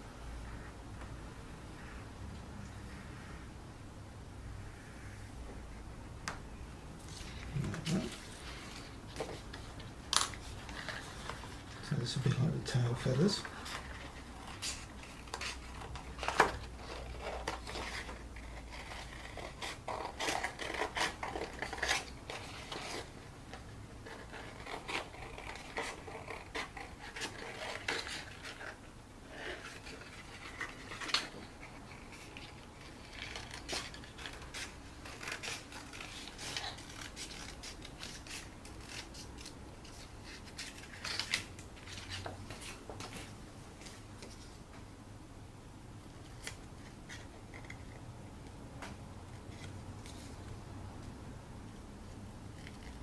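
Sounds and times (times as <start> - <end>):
scissors cutting cardboard: 13.2 - 23.1, 24.0 - 28.8.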